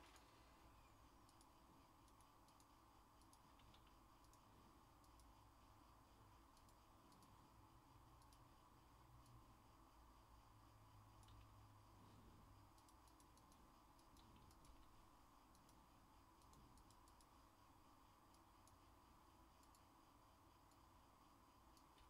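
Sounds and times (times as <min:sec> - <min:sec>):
mouse and keyboard clicks: 0:01.2 - 0:05.3, 0:06.5 - 0:07.4, 0:11.2 - 0:11.6, 0:12.7 - 0:15.8, 0:16.4 - 0:17.4.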